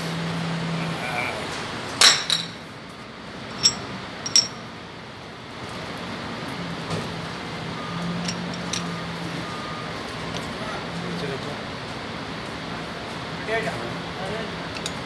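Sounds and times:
metal parts clinking: 0:03.5 - 0:04.6, 0:08.2 - 0:09.0.

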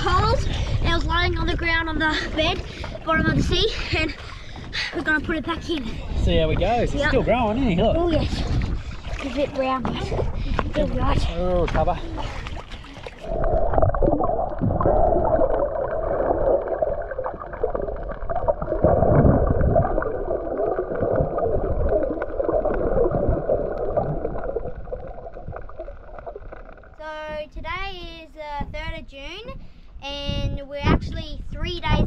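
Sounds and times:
underwater water gurgling: 0:00.0 - 0:27.0
swimmer moving underwater: 0:08.2 - 0:27.0.

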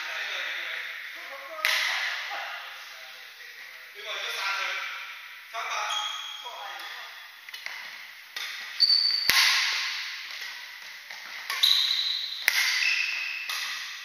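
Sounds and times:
rackets striking shuttlecock: 0:01.6 - 0:02.1, 0:06.8 - 0:14.0
shoes squeaking on wooden floor: 0:05.8 - 0:06.5, 0:08.6 - 0:09.3, 0:11.1 - 0:13.5.

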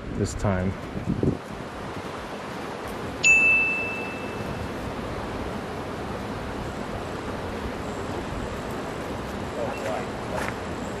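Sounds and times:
steady outdoor hiss: 0:00.0 - 0:11.0
small bell ding: 0:03.2 - 0:04.6.

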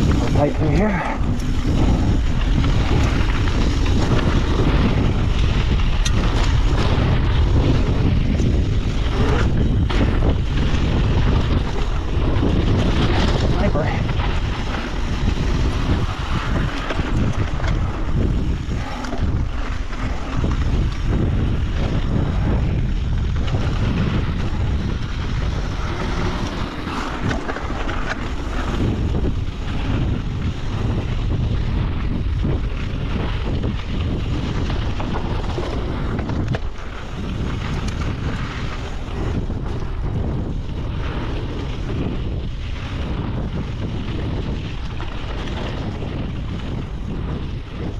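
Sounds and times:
bike rattles and knocks: 0:00.0 - 0:47.9
tyres rushing on dirt: 0:00.0 - 0:47.9
wind buffeting microphone: 0:00.0 - 0:47.9.

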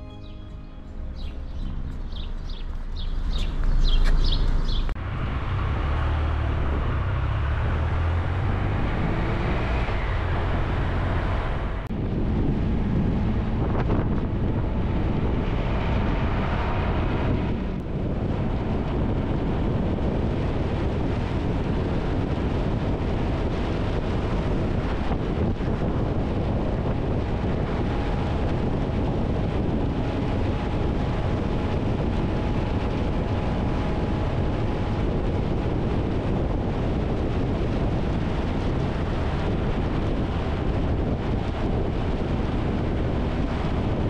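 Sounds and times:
birds chirping: 0:00.0 - 0:05.0
motorcycle engine rumble: 0:00.0 - 0:05.8
wind noise on microphone: 0:00.0 - 0:44.0.

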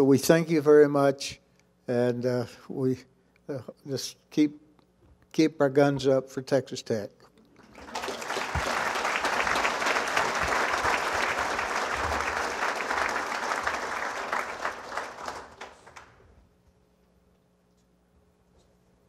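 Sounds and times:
audience applauding: 0:07.6 - 0:16.2.

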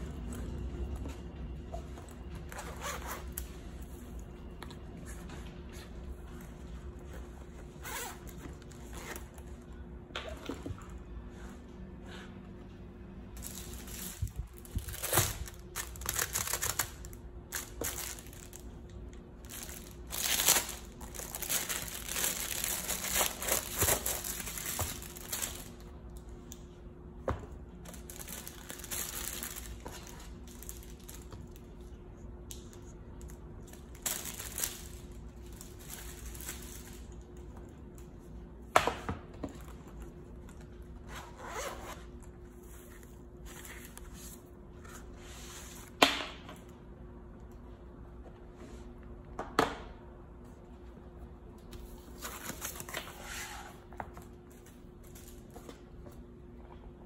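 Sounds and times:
faint steady hum: 0:00.0 - 0:57.0
fabric and plastic rustling: 0:13.3 - 0:25.9, 0:27.8 - 0:31.9, 0:32.9 - 0:37.2.

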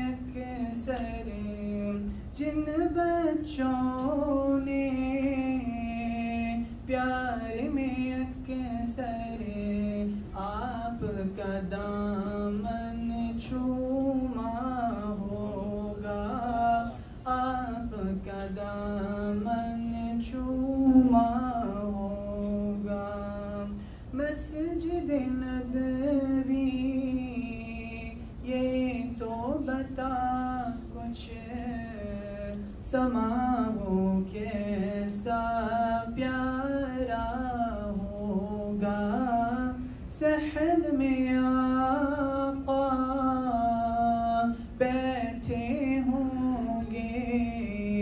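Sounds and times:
singer breathing: 0:16.9 - 0:17.3, 0:23.7 - 0:24.2
person singing long notes: 0:18.0 - 0:23.7.

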